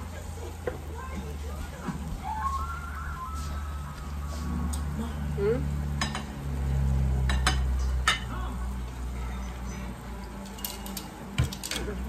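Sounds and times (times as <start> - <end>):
steady low hum: 0.0 - 11.4
utensils and dishes clinking: 5.9 - 8.4, 10.2 - 12.0.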